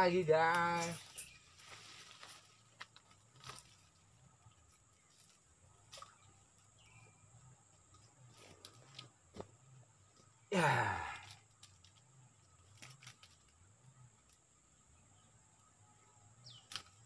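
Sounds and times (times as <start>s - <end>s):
man sighing: 10.5s - 11.4s.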